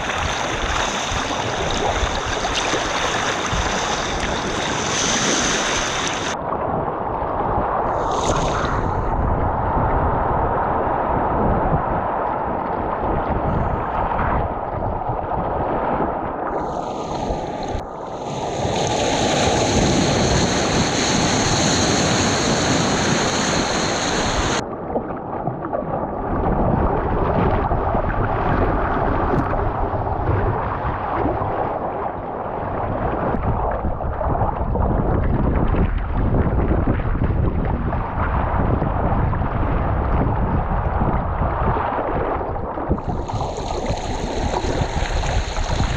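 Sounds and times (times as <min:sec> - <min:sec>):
ocean surf: 0:00.0 - 0:24.7, 0:38.0 - 0:45.9
wind buffeting microphone: 0:00.0 - 0:45.9.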